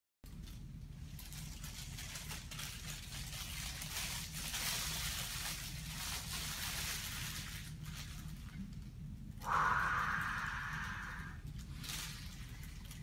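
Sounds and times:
plastic bag rustling and crinkling: 0:00.3 - 0:09.1, 0:11.4 - 0:13.0
steady low hum: 0:09.0 - 0:12.0.

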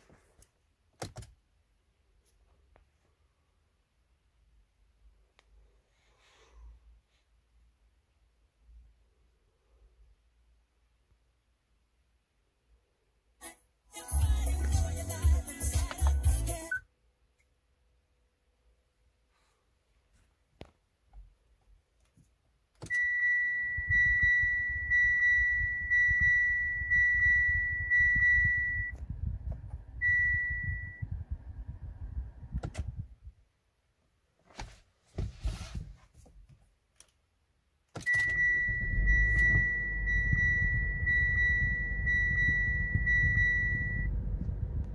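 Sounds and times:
high electronic dashboard chime: 0:22.9 - 0:29.0, 0:30.0 - 0:31.1, 0:38.1 - 0:44.3
car engine starting and idling: 0:38.0 - 0:44.9.

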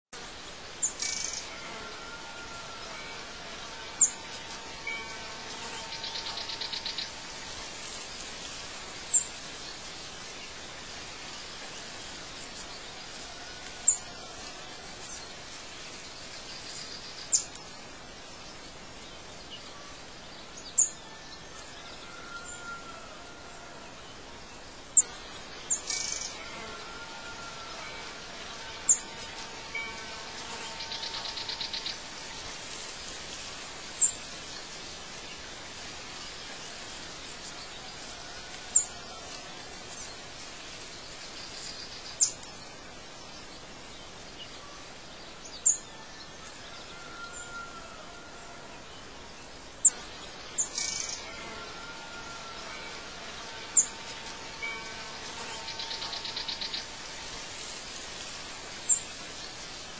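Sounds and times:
background hiss: 0:00.1 - 0:59.9
buzzy bird trills: 0:50.6 - 0:57.4.

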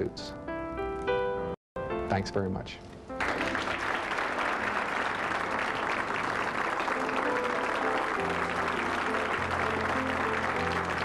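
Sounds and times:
audience applause: 0:03.2 - 0:11.0.

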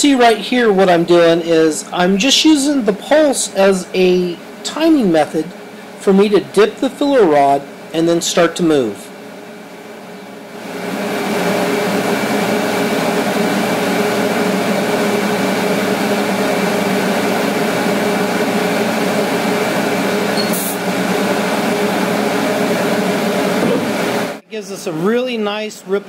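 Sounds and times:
welding arc hissing buzz: 0:10.6 - 0:24.4.

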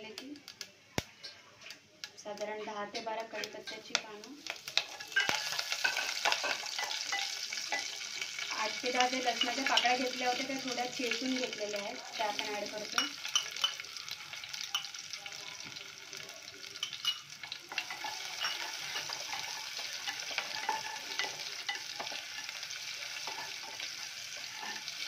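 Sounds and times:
spices sizzling in hot oil: 0:00.0 - 0:25.0
spatula scraping and tapping pot: 0:00.1 - 0:08.0, 0:12.9 - 0:13.8, 0:14.6 - 0:15.0, 0:16.8 - 0:25.0.

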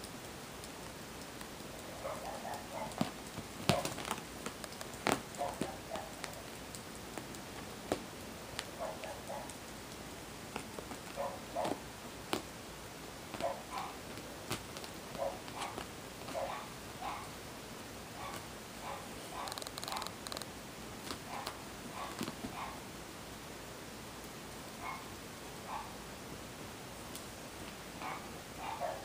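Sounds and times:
kitten purring: 0:18.2 - 0:20.5.

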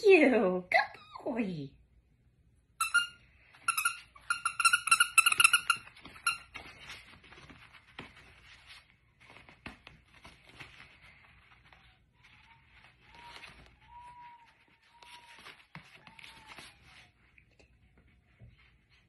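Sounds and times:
squeaky dog toy: 0:02.8 - 0:06.6
puppy scuffling on mat: 0:05.2 - 0:19.0.

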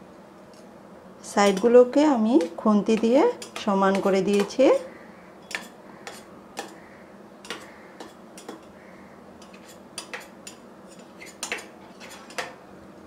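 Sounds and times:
spatula scraping steel plate: 0:05.5 - 0:06.8, 0:09.4 - 0:12.5.

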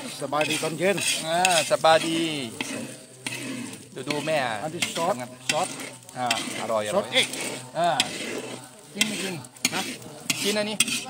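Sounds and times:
egg sizzling: 0:00.0 - 0:11.0
metal ladle scraping wok: 0:00.0 - 0:11.0.

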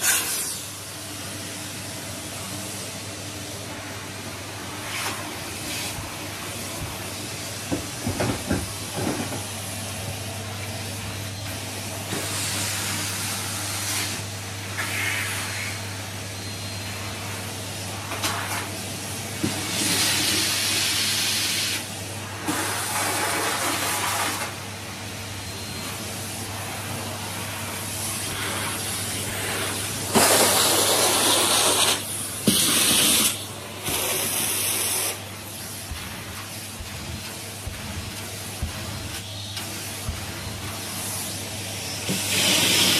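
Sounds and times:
vacuum cleaner running: 0:00.0 - 0:42.9.

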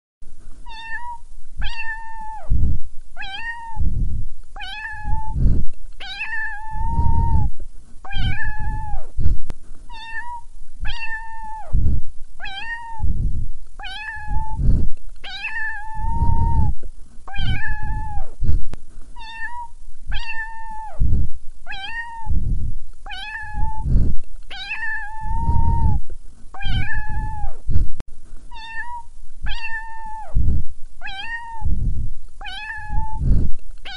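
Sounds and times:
cat meowing: 0:00.7 - 0:02.5, 0:03.2 - 0:03.8, 0:04.6 - 0:05.4, 0:06.0 - 0:07.5, 0:08.1 - 0:09.1, 0:09.9 - 0:11.8, 0:12.4 - 0:13.1, 0:13.8 - 0:14.6, 0:15.2 - 0:18.4, 0:19.2 - 0:21.0, 0:21.7 - 0:22.4, 0:23.1 - 0:23.9, 0:24.5 - 0:26.0, 0:26.6 - 0:27.6, 0:28.5 - 0:30.4, 0:31.0 - 0:31.7, 0:32.4 - 0:33.9.

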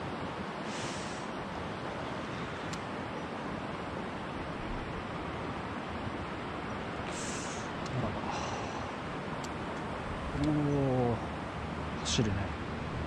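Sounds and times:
flowing river water: 0:00.0 - 0:13.0
faint ticks: 0:02.6 - 0:02.9
brief higher hiss: 0:07.1 - 0:07.7.

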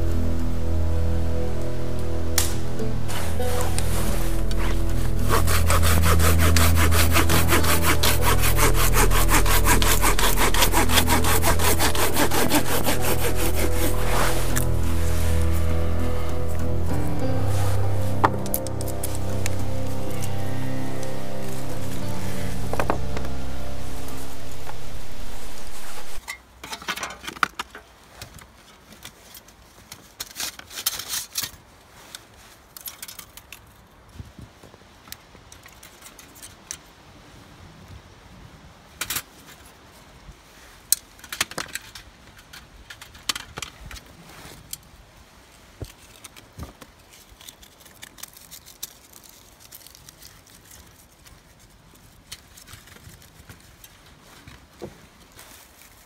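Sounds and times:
sticks scraping and knocking: 0:02.4 - 0:16.3.

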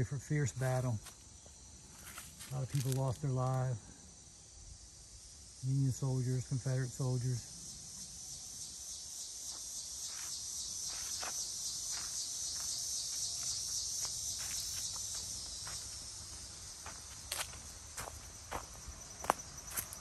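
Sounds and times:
high-pitched insect chorus: 0:00.0 - 0:20.0
footsteps: 0:01.0 - 0:03.0, 0:09.5 - 0:20.0.

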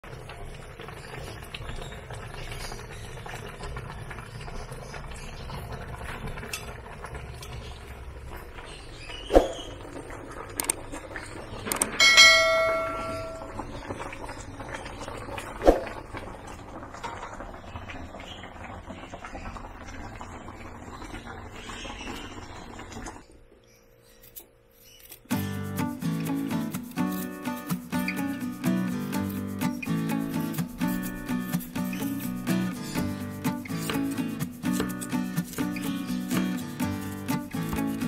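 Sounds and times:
bell ding: 0:12.0 - 0:13.6.

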